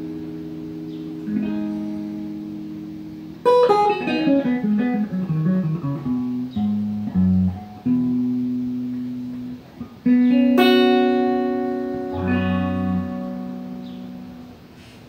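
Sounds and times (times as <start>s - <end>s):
electric guitar blues phrase: 0.0s - 14.9s.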